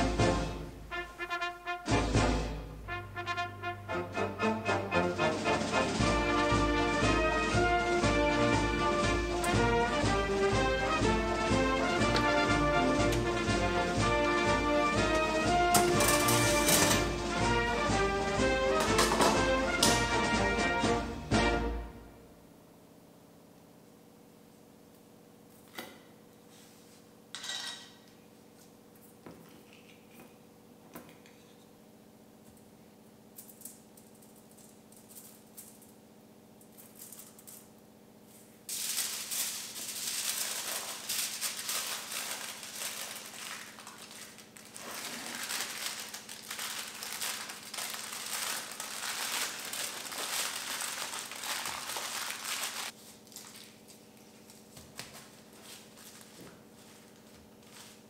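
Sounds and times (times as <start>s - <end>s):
aluminium foil crinkling: 38.7s - 58.0s.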